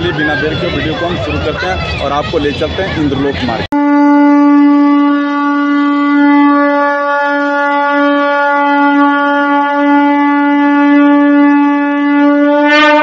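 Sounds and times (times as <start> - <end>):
loud horn-like note: 3.7 - 13.0.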